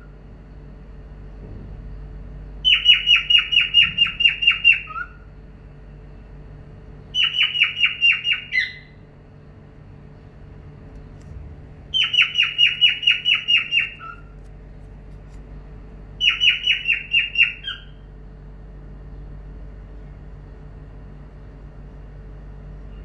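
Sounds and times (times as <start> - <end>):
cockatiel calling: 2.6 - 5.2, 7.1 - 9.0, 11.9 - 14.3, 16.2 - 18.0.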